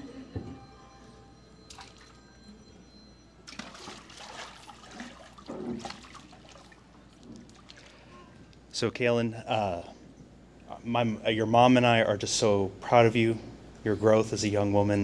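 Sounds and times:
water sloshing and splashing: 0:03.5 - 0:08.1.

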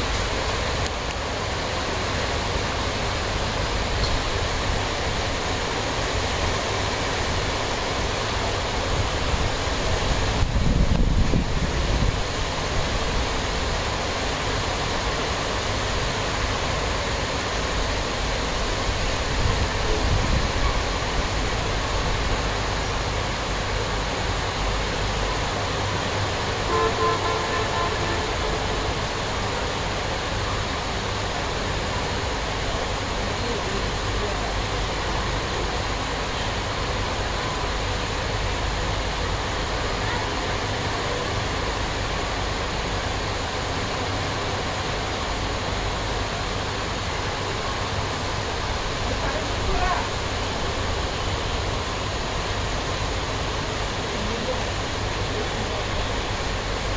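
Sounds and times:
rain: 0:00.0 - 0:56.9
wind buffeting microphone: 0:09.0 - 0:12.6.

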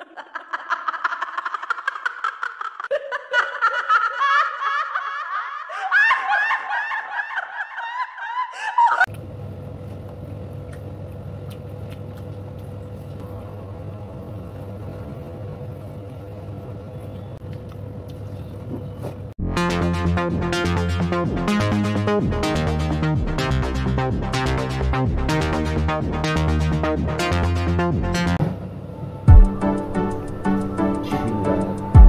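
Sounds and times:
low hum: 0:19.4 - 0:32.0.

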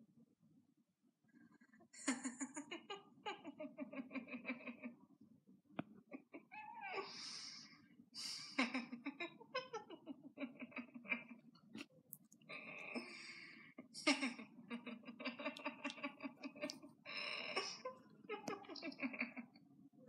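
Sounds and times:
person giggling: 0:13.9 - 0:19.6.

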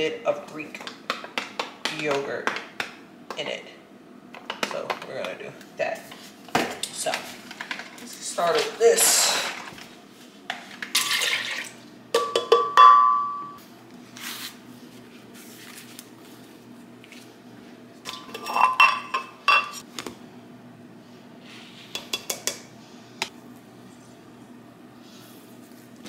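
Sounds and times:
dishes and utensils clinking: 0:12.2 - 0:13.6, 0:18.0 - 0:19.8.

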